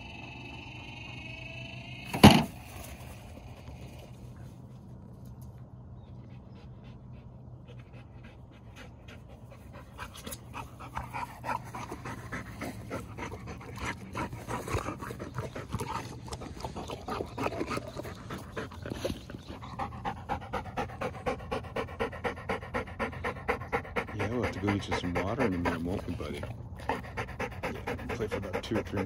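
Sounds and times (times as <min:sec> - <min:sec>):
dog panting: 0:06.0 - 0:29.0.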